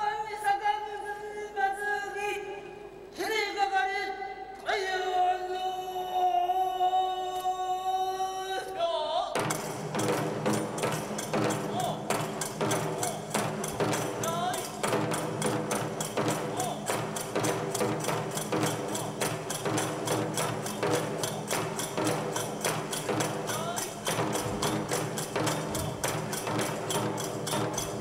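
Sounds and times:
barrel drum beating: 9.4 - 28.0.

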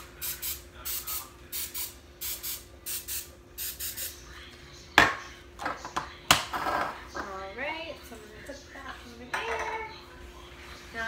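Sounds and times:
cooking spray hissing: 0.0 - 4.2.

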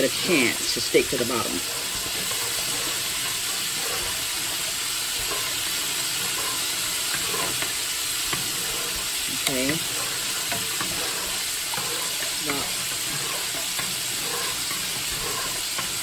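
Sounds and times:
chicken sizzling in hot oil: 0.0 - 16.0
metal spoon stirring in pot: 0.0 - 16.0
water boiling: 0.0 - 16.0.

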